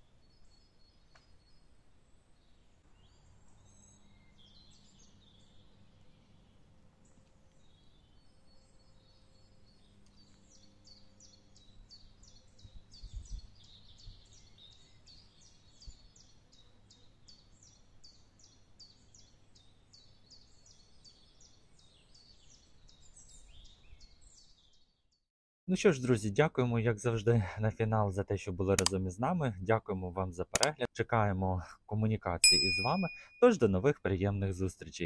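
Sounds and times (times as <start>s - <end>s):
bird repeating high note: 32.4s - 33.5s.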